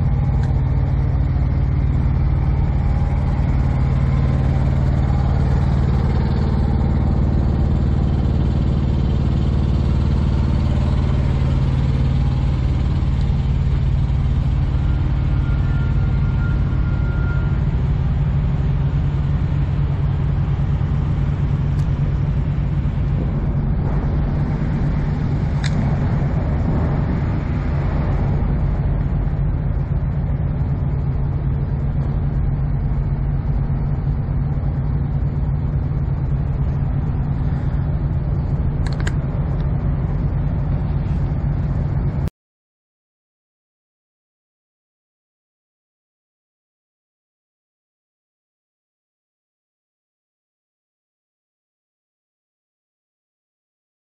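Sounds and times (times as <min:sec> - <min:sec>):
diesel truck engine idling: 0:00.0 - 0:42.2.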